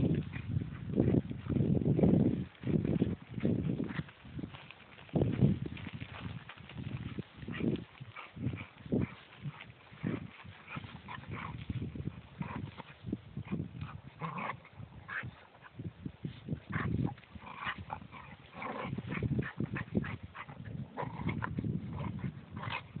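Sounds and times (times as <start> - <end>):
dogs play-fighting vocalising: 7.5 - 11.6, 12.3 - 15.8, 16.7 - 23.0.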